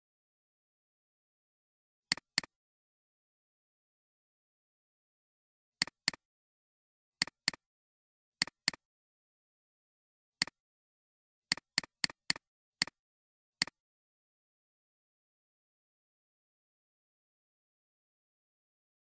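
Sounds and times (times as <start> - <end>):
computer mouse clicking: 2.1 - 2.5.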